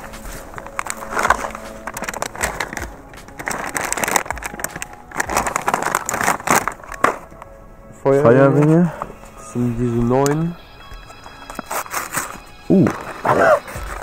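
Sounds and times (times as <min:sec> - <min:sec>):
plastic packaging crinkling: 0:00.0 - 0:07.5, 0:11.5 - 0:14.0.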